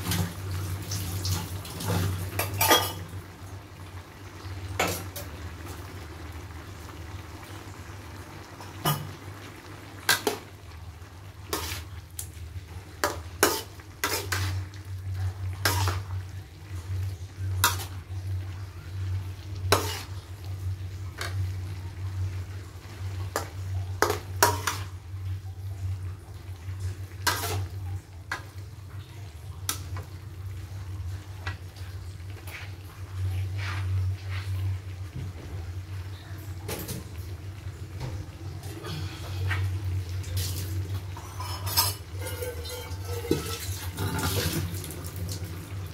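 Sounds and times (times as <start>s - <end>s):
low steady hum: 0.0s - 45.9s
metal utensils scraping a wok: 11.5s - 11.9s, 13.0s - 14.6s, 15.6s - 16.0s, 19.7s - 20.2s, 27.2s - 27.7s, 41.2s - 44.6s.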